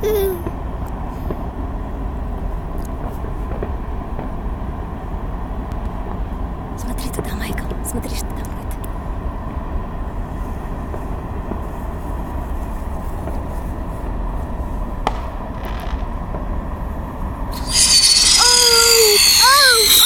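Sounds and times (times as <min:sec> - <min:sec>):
firework hissing: 0:17.6 - 0:20.0
firework whistle falling in pitch: 0:17.6 - 0:20.0.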